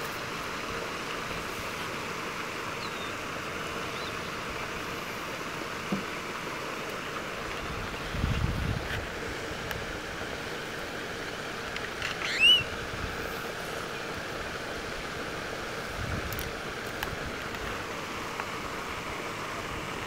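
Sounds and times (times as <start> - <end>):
wind noise: 7.6 - 9.2, 15.9 - 16.5
high rising squeak: 12.0 - 12.7.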